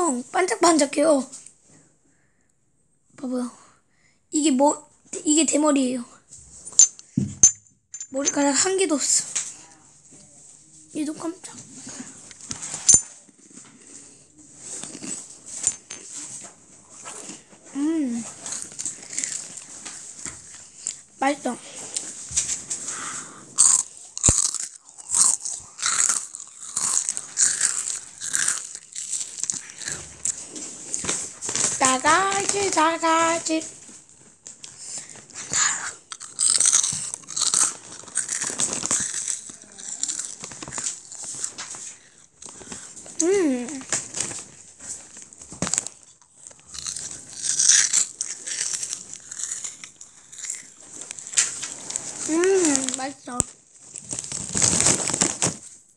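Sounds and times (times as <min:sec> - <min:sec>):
child chewing crunchy snack: 0:11.4 - 0:55.7
plastic bag crinkling: 0:21.7 - 0:35.5, 0:36.1 - 0:55.9.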